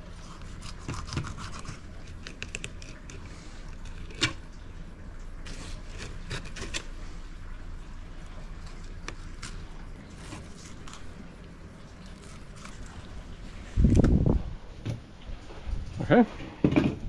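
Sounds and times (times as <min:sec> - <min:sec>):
knife scraping fish bones: 0:00.2 - 0:04.4, 0:05.5 - 0:06.9, 0:09.0 - 0:11.1.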